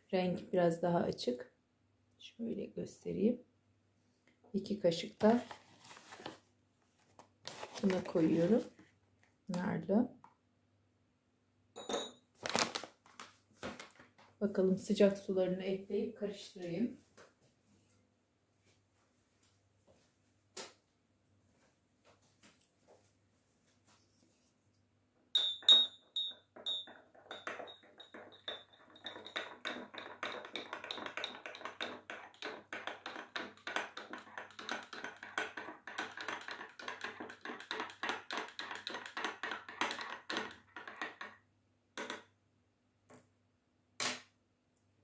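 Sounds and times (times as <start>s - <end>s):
teaspoon clinking in cup: 25.4s - 41.2s.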